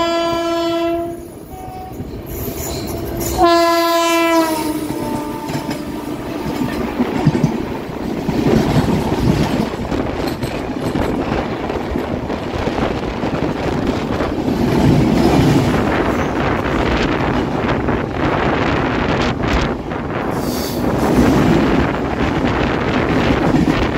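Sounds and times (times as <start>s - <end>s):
passing train rumble: 0.0s - 23.9s
wind buffeting microphone: 4.2s - 23.9s
wheels clacking over rail joints: 4.4s - 18.2s.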